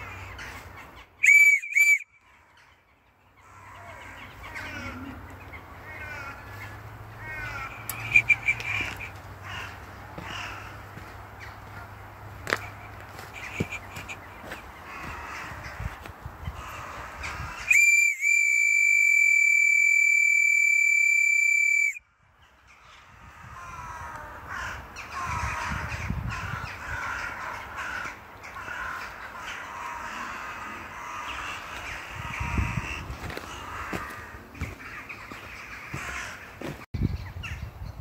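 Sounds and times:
loud high-pitched whistle: 1.2 - 2.1, 17.7 - 22.0
crows cawing: 3.4 - 17.7, 22.5 - 36.8.

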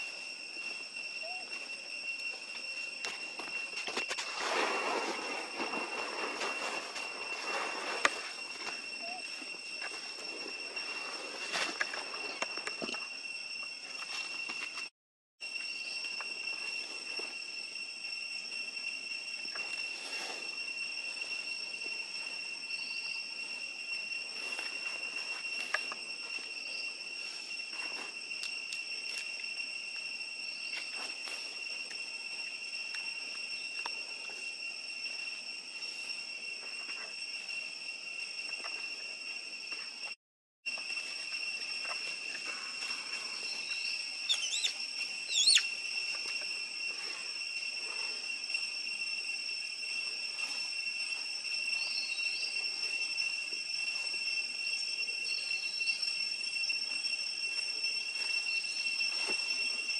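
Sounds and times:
high-pitched insect drone: 0.0 - 59.9
whistled calls sweeping in pitch: 43.2 - 47.7, 48.7 - 56.6.

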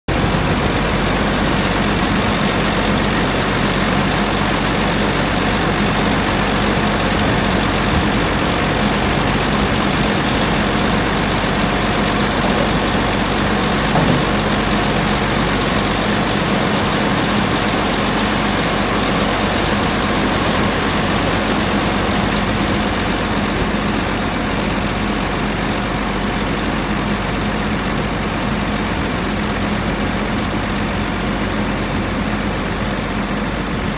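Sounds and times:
diesel engine running: 0.1 - 33.9
brief thump: 13.9 - 14.4.

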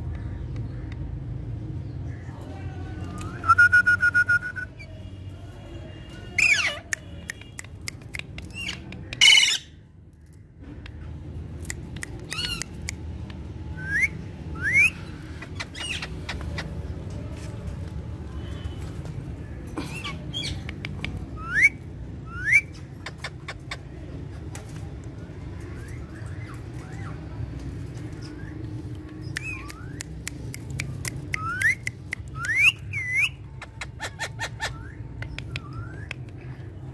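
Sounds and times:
parakeets squawking: 8.5 - 9.8, 12.2 - 12.8, 14.8 - 17.0, 32.6 - 35.0.

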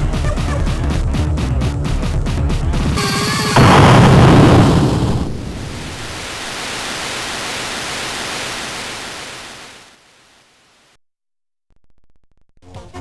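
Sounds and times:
white noise hiss: 4.3 - 11.0.

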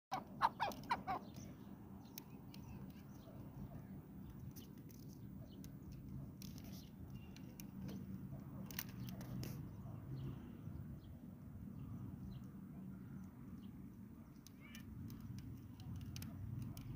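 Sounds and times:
partridge calls: 0.1 - 1.6
faint clicks: 13.2 - 16.9.

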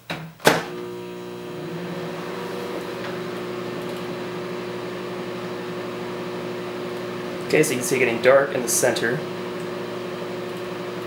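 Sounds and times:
microwave oven humming: 0.6 - 11.0.

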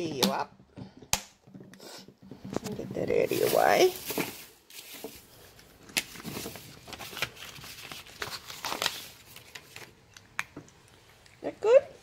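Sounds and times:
cat crunching dry kibble: 6.8 - 11.4.

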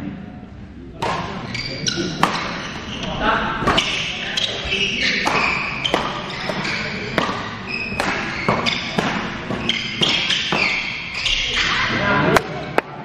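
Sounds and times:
court shoes squeaking: 1.0 - 12.8
rackets striking shuttlecock: 1.0 - 12.9.

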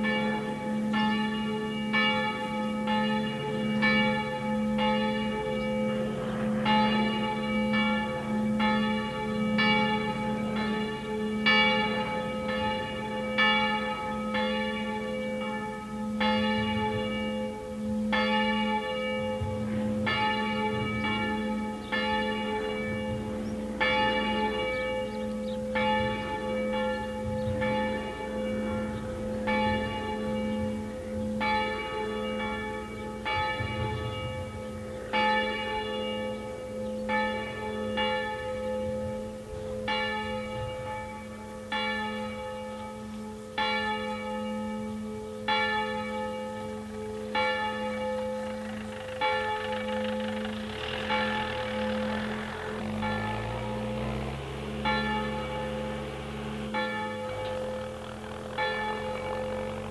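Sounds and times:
church bell ringing: 0.0 - 59.9
deep hum: 48.2 - 59.9.

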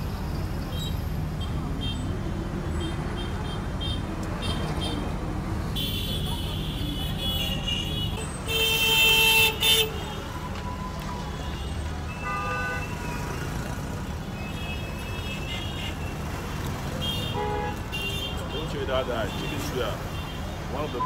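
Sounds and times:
street traffic rumbling: 0.0 - 21.0
car horn: 5.8 - 10.3, 11.4 - 13.2, 17.0 - 21.0.

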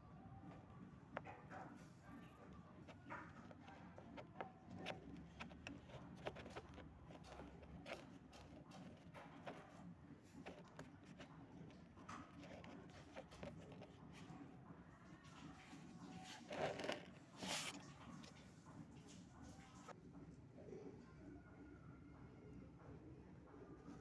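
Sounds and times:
handling clicks and taps: 1.1 - 9.7, 10.3 - 14.2.

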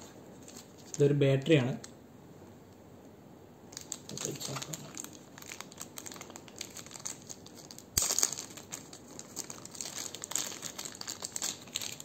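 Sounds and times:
plastic bag crinkling: 0.0 - 1.0, 3.7 - 12.0.

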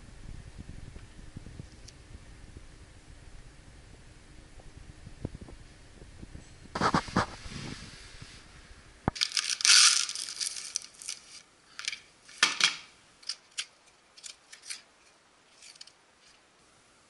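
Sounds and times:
plastic film crackling tear: 9.1 - 12.6.

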